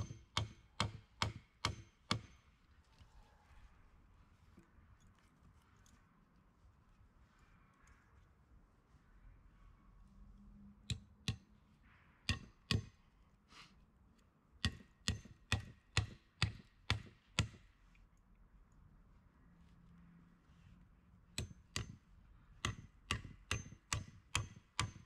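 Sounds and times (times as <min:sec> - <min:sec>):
hand tool striking wood: 0:00.0 - 0:02.4, 0:14.6 - 0:17.6, 0:21.4 - 0:22.0, 0:22.6 - 0:25.0.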